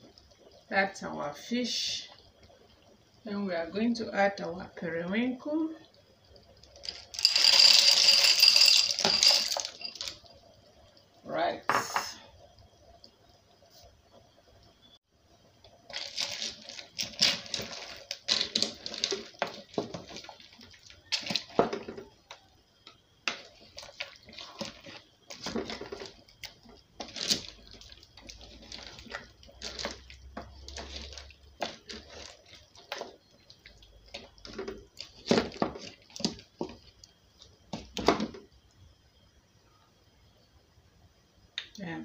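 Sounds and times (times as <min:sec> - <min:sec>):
soup sloshing: 0:15.8 - 0:38.1.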